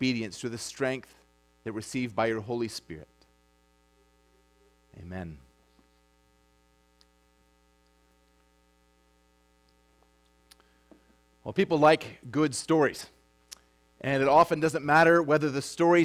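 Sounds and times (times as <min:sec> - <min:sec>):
electrical mains hum: 0:00.0 - 0:16.0
faint click: 0:13.5 - 0:13.7.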